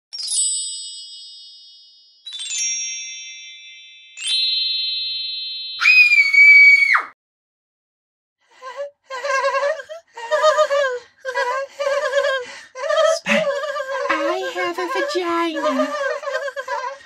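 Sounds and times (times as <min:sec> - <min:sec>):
squeaky high-pitched voices chattering: 0:13.0 - 0:16.3.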